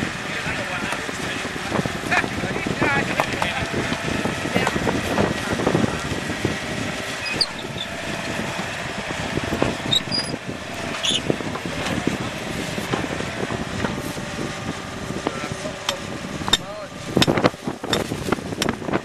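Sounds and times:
diesel engine running: 0.0s - 19.0s
wind blowing across microphone: 0.0s - 19.0s.

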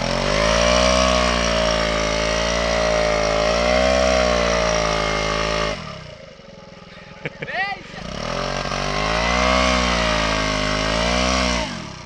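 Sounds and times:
scooter engine idling: 0.0s - 12.0s
scooter engine revving hard: 0.0s - 12.0s.

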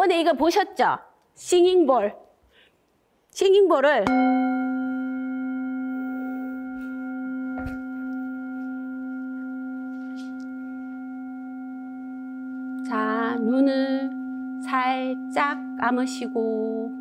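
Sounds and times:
singing bowl ringing: 4.1s - 17.0s.

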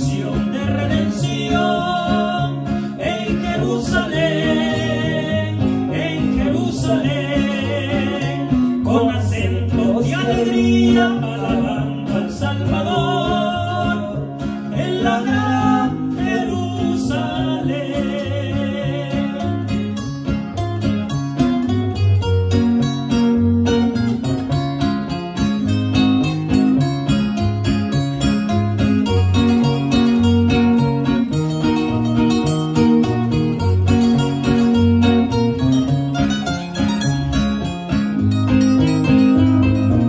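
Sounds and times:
two men singing: 0.0s - 20.1s
acoustic guitars: 0.0s - 40.0s.

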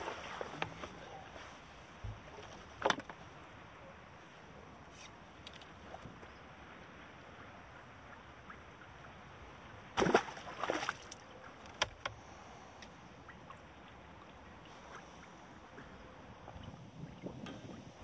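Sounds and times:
splashing and rustling: 0.0s - 1.6s, 9.9s - 11.9s
faint wind: 0.0s - 18.0s.

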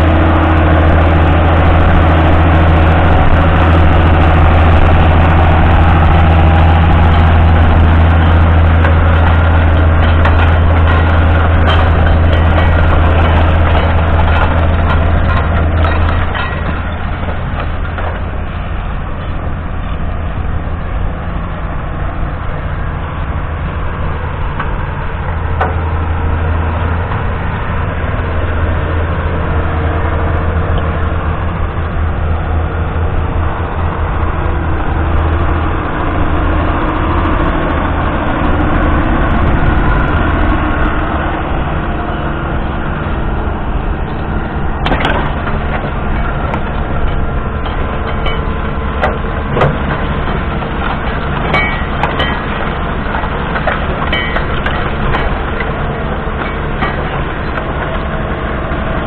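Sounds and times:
soil rushing over plough: 0.0s - 59.0s
tractor diesel engine running: 0.0s - 59.0s
sharp knocks and clicks: 44.8s - 55.8s.

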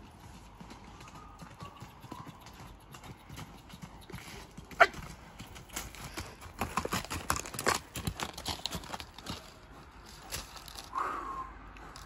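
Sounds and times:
hoofbeats on dirt: 0.0s - 11.0s.

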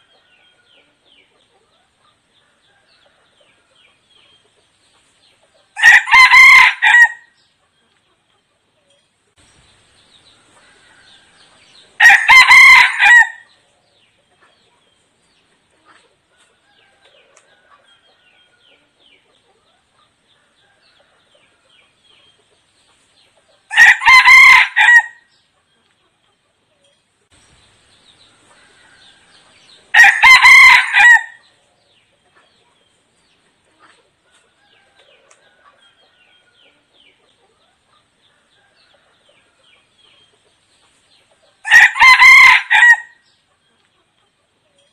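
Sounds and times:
rooster crowing: 5.8s - 7.3s, 10.6s - 13.5s, 23.7s - 25.2s, 28.6s - 31.4s, 41.6s - 43.2s.

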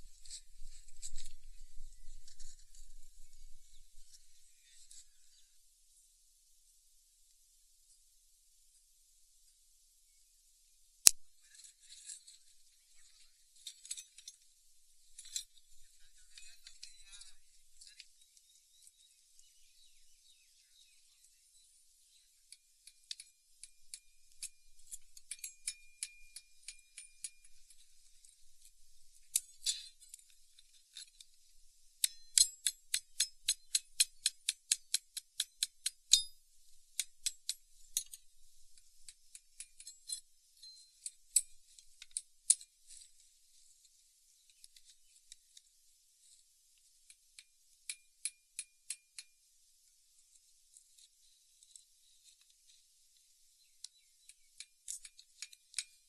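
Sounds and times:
metal tools clicking and clinking: 11.1s - 14.5s, 15.1s - 18.1s, 22.5s - 31.4s, 32.0s - 36.4s, 37.0s - 43.2s, 53.8s - 56.0s.

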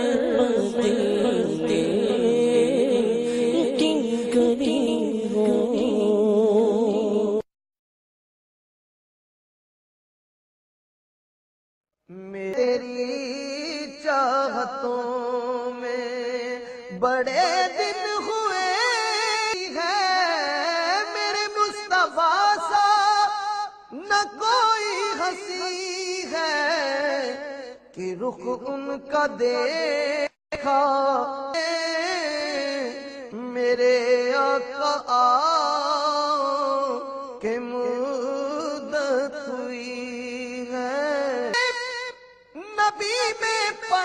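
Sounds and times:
person singing devotional song: 0.0s - 7.5s, 12.1s - 44.0s.

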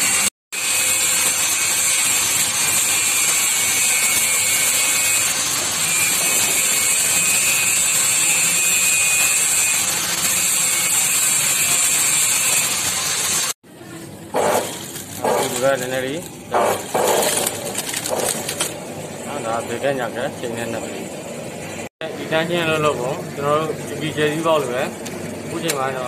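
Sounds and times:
sewing machine clatter: 16.6s - 18.8s.

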